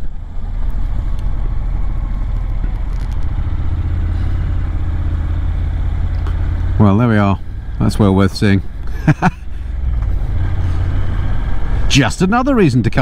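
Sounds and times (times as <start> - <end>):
motorcycle engine running: 0.0 - 11.9.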